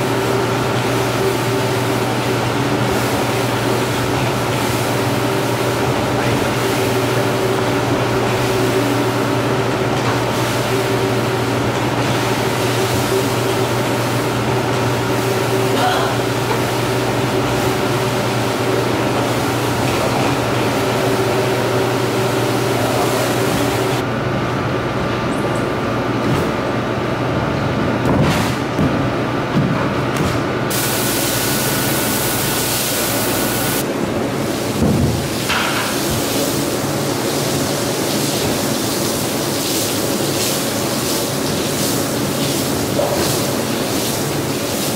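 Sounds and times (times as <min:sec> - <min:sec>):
floor scrubber motor hum: 0:30.7 - 0:34.8.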